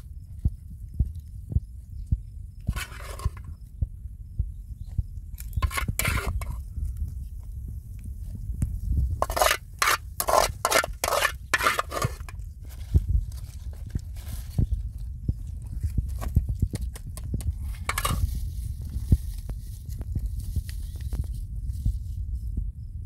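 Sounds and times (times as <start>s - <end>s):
steady low rumble: 0.0s - 23.0s
flatbread crackling and rustling: 9.3s - 22.3s.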